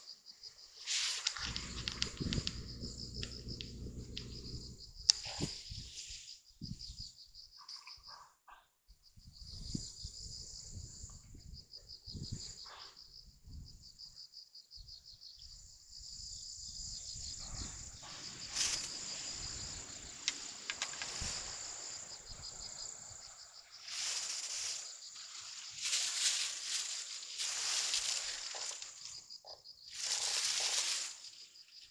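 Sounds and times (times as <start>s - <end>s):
crickets trilling: 0.0s - 7.8s, 9.1s - 31.9s
rustling noise: 0.8s - 6.3s, 18.0s - 21.7s, 23.8s - 29.2s, 29.9s - 31.4s
wind rumble on microphone: 1.4s - 6.0s, 9.2s - 14.0s, 16.0s - 20.2s.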